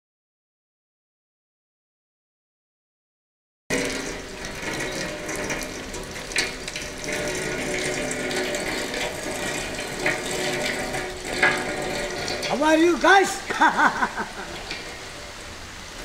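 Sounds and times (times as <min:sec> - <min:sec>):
water pouring and splashing: 0:03.7 - 0:16.0.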